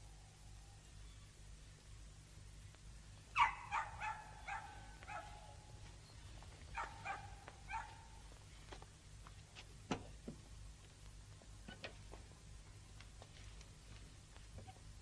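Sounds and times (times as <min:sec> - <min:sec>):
dog barking: 0:03.4 - 0:05.6, 0:06.7 - 0:08.1.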